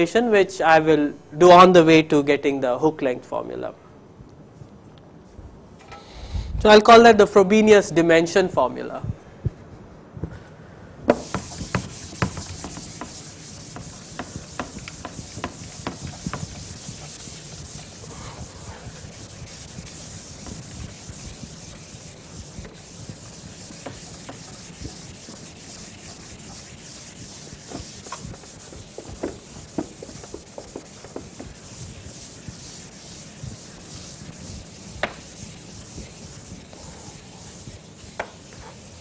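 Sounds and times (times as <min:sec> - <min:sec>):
duster wiping chalkboard: 0:11.1 - 0:39.0.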